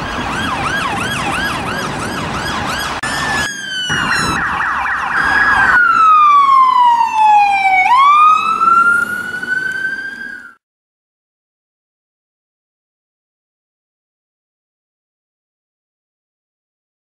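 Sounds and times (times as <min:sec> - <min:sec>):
siren wail: 0:00.0 - 0:10.6
siren yelp: 0:00.0 - 0:10.6.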